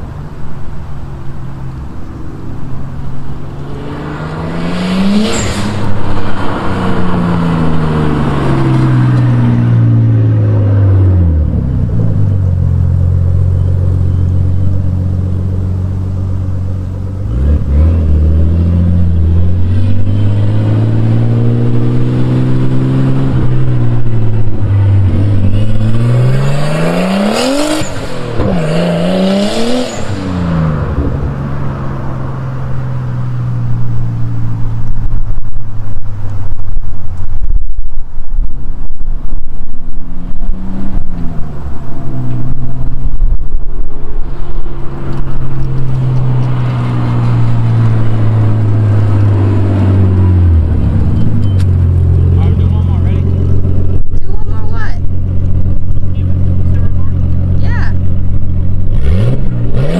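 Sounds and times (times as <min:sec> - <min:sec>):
car engine accelerating past: 0:03.5 - 0:11.7, 0:17.2 - 0:33.5.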